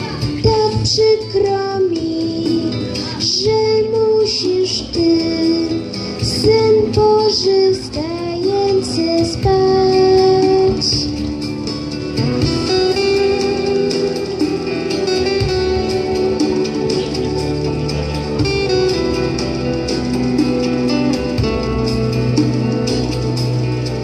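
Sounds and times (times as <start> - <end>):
girl singing into microphone: 0.0 - 11.3
guitar accompaniment: 0.0 - 24.0.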